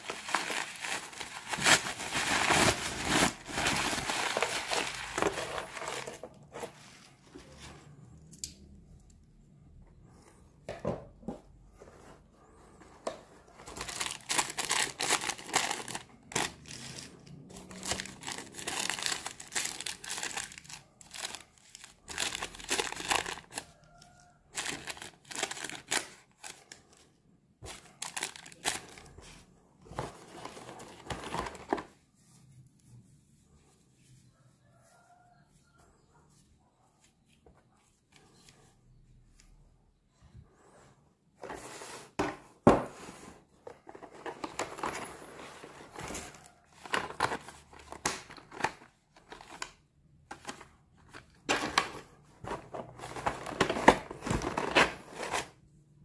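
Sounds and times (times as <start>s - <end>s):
packing paper and plastic crinkling: 0.0s - 7.8s, 13.6s - 27.0s, 27.6s - 29.3s, 43.8s - 55.5s.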